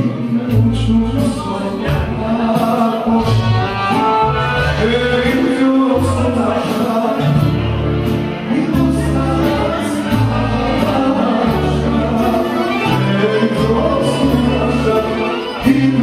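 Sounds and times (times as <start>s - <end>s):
accordion: 0.0s - 16.0s
bass line: 0.0s - 16.0s
man singing into microphone: 0.0s - 16.0s
saxophone: 0.0s - 16.0s.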